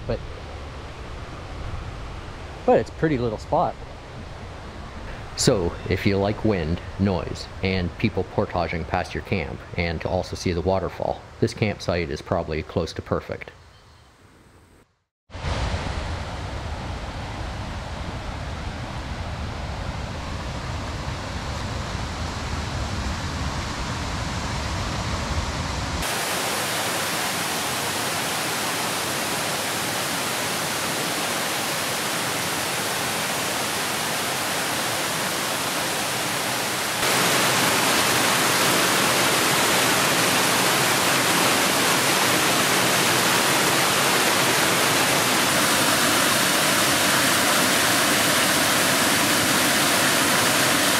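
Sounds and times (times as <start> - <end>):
waterfall rushing water: 26.0 - 50.9.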